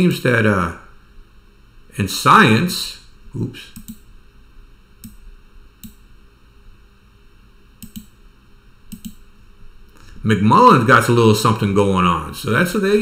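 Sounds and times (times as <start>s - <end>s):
computer mouse clicking: 3.8s - 4.0s, 5.0s - 5.2s, 5.8s - 6.0s, 7.8s - 8.2s, 8.9s - 9.2s.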